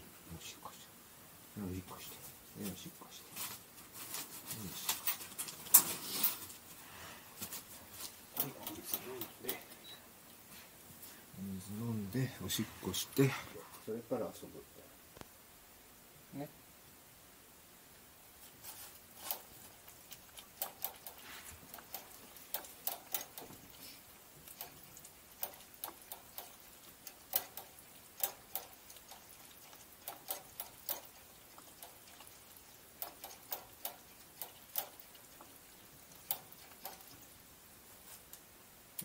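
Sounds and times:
puppy clicks and taps in wire crate: 8.3s - 9.7s, 19.1s - 23.8s, 24.4s - 37.4s.

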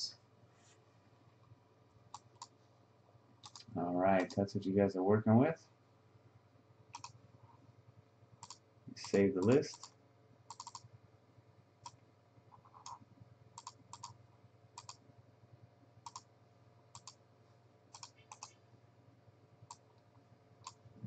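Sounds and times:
low steady hum: 0.0s - 21.0s
computer mouse clicking: 2.1s - 2.6s, 3.4s - 4.4s, 6.9s - 7.2s, 8.4s - 10.9s, 11.8s - 13.0s, 13.6s - 14.2s, 14.8s - 15.0s, 16.0s - 16.3s, 16.9s - 17.2s, 17.9s - 18.6s, 19.6s - 20.0s, 20.6s - 20.8s.

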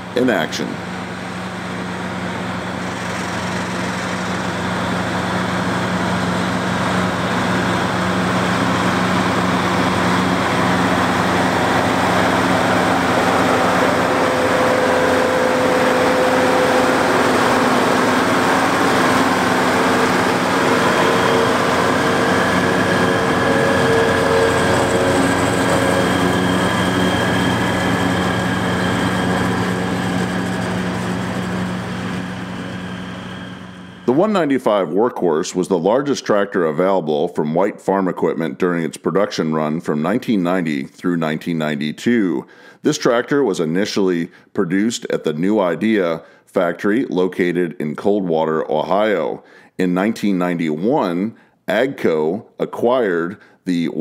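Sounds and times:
forage harvester whine: 0.0s - 34.4s
tractor diesel engine drone: 0.0s - 34.9s.

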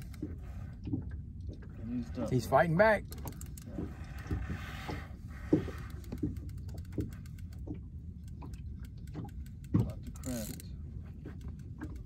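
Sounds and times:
fishing reel whirring: 9.4s - 10.7s.

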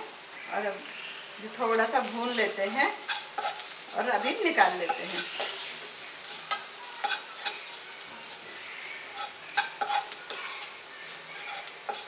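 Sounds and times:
onions sizzling in oil: 0.0s - 12.0s
spoon scraping a pan: 2.4s - 12.0s.

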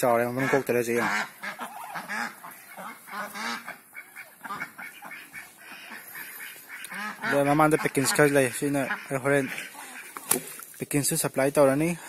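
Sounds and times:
ducks quacking: 0.0s - 10.6s.

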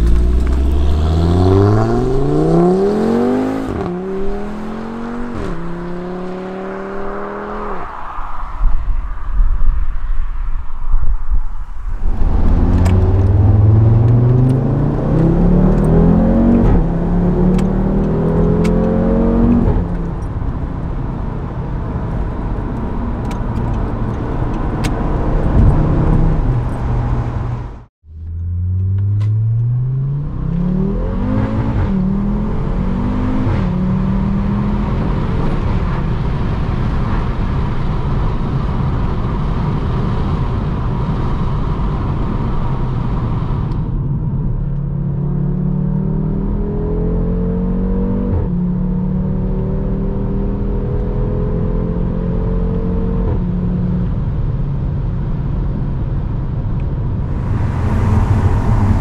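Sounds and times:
car engine accelerating: 0.0s - 8.5s, 12.0s - 43.7s, 57.1s - 59.0s.

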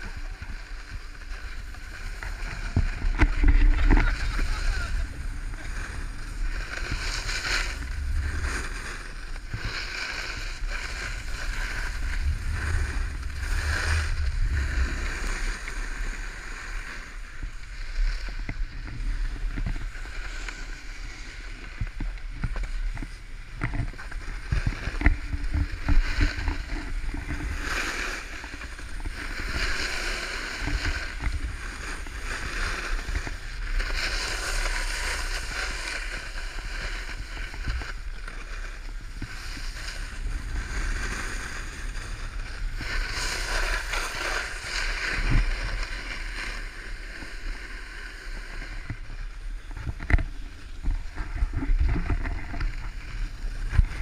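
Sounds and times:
edges scraping over snow: 0.0s - 54.0s
wind buffeting microphone: 1.0s - 20.0s.

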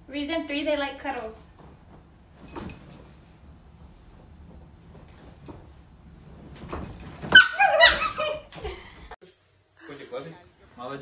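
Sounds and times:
small dog yapping and snarling: 7.2s - 8.2s.

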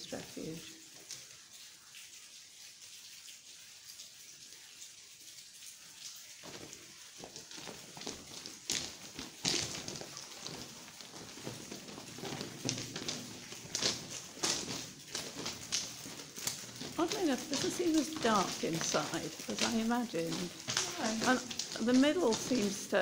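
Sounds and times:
faint steady hiss: 0.0s - 23.0s
footsteps scuffing and crunching: 6.4s - 23.0s.

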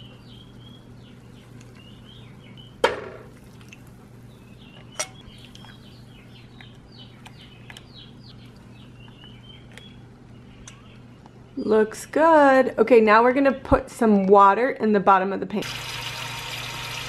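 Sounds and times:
small birds chirping: 0.0s - 2.8s, 3.4s - 12.2s
low steady hum: 0.0s - 17.0s.

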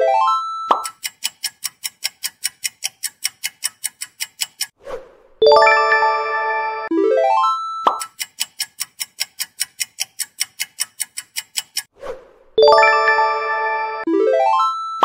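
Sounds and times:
countdown timer ticking: 0.3s - 4.8s, 5.4s - 11.9s, 12.6s - 14.2s
bright bell-like chime: 5.4s - 7.8s, 12.6s - 15.0s.

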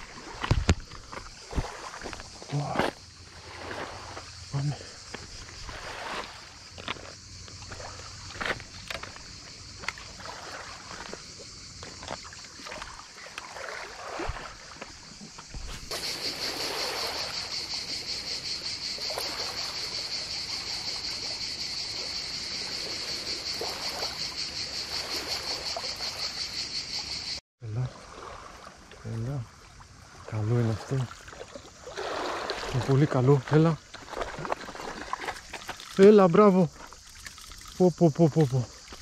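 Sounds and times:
crickets chirping: 0.0s - 39.0s
waves lapping on pebble shore: 5.5s - 8.7s, 9.7s - 11.2s, 12.2s - 15.0s, 15.6s - 18.2s, 22.0s - 26.3s, 30.8s - 37.9s.

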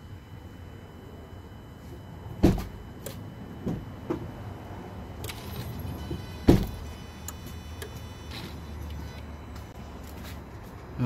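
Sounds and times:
loud dull knocks: 6.4s - 6.8s.

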